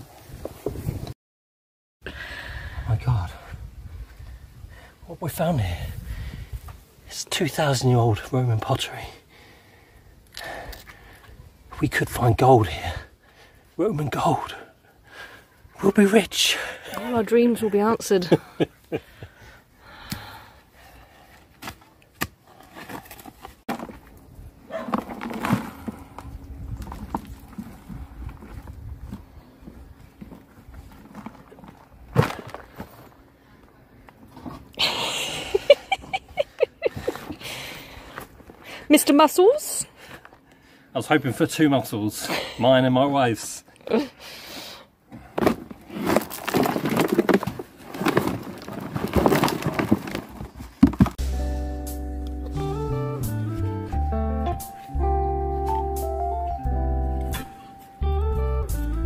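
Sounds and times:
soil crunching: 21.4 - 35.1, 45.2 - 51.3.

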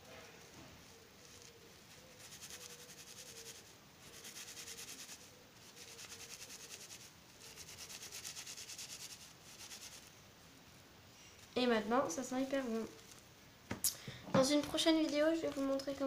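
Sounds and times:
fingers rubbing fabric pouch: 1.0 - 10.1.

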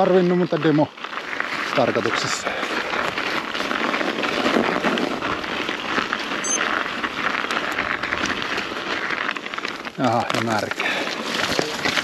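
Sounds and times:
tyres crunching on gravel: 0.0 - 12.0
short high electronic beep: 6.4 - 6.6.

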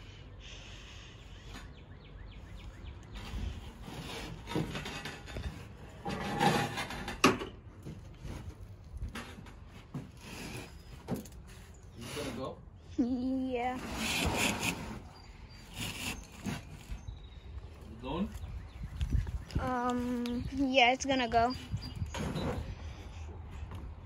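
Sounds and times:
motorcycle knocking and scraping: 3.1 - 11.5.

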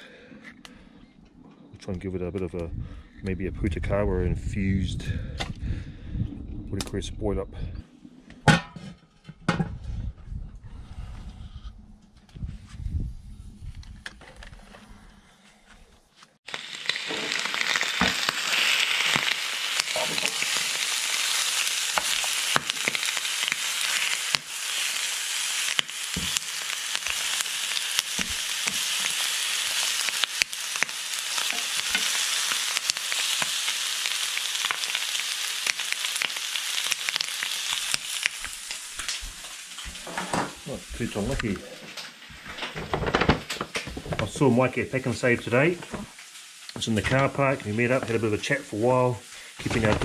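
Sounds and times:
meat sizzling in a hot pan: 16.5 - 41.6, 44.9 - 49.9.

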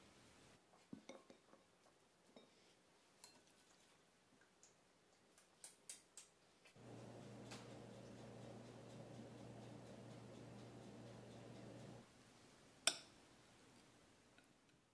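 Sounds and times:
low hum: 6.8 - 12.0.

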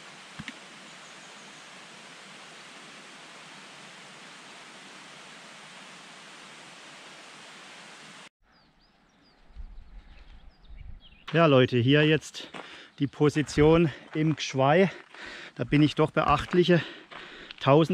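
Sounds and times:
rushing water: 0.0 - 8.3.

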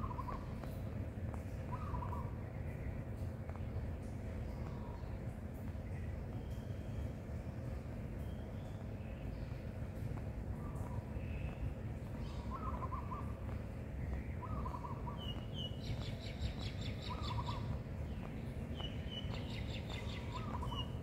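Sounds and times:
low background rumble: 0.0 - 21.0
rapid high bird chirping: 10.8 - 21.0
bird wavering call: 12.2 - 13.4.

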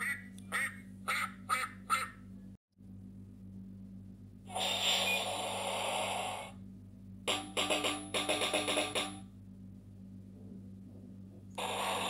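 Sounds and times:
band tune with drumbeats: 7.3 - 9.2.

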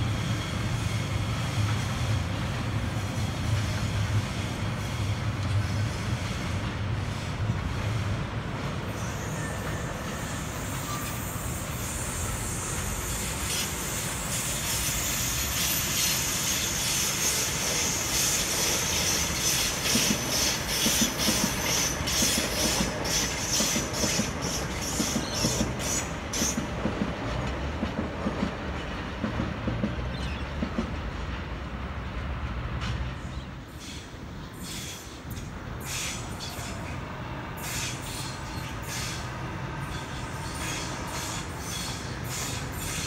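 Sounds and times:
low train rumble: 0.0 - 43.0
high wheel squeal: 8.9 - 26.6, 33.7 - 37.0, 37.6 - 43.0
train wheels clattering over rail joints: 12.7 - 31.5.

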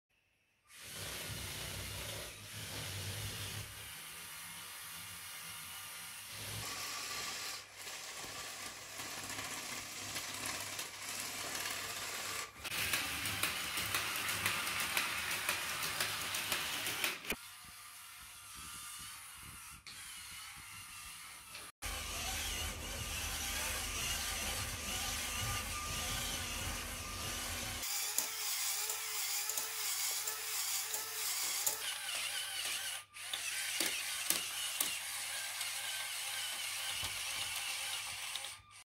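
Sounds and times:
small electric motors whirring: 0.7 - 38.8
plastic gears clicking and rattling: 7.4 - 17.4, 23.4 - 38.8.

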